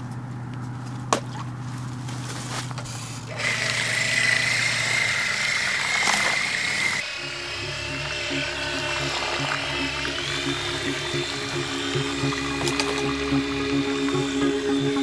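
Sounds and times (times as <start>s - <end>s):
small electric motor whining: 2.7s - 15.0s
background music: 7.0s - 15.0s.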